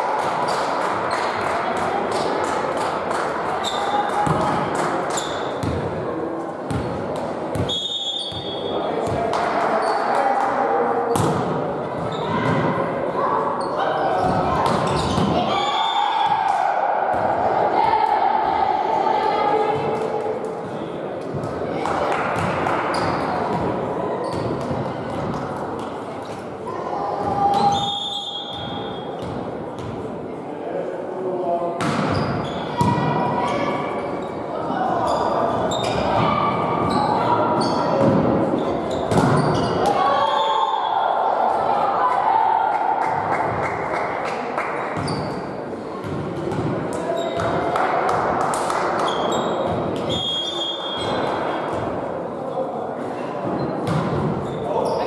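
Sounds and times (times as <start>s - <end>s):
sneaker squeaks: 3.6s - 4.4s, 5.1s - 5.8s, 7.5s - 9.2s, 9.8s - 10.2s, 12.0s - 12.6s, 13.6s - 16.3s, 22.9s - 23.3s, 24.2s - 24.7s, 27.3s - 29.9s, 31.8s - 34.4s, 35.0s - 40.6s, 45.0s - 47.6s, 49.0s - 51.9s, 53.2s - 55.0s.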